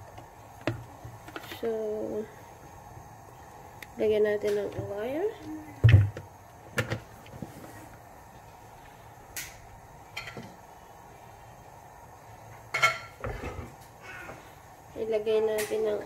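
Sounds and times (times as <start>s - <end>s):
faint steady background hum: 0.0s - 16.0s
kitchen things knocking and clattering: 5.8s - 7.1s, 10.1s - 10.6s.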